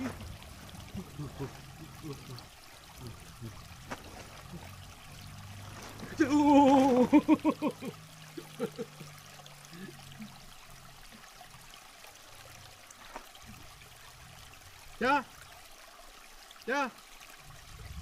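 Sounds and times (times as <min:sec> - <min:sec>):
stream trickling: 0:00.0 - 0:18.0
man laughing: 0:00.9 - 0:02.4, 0:06.2 - 0:09.1.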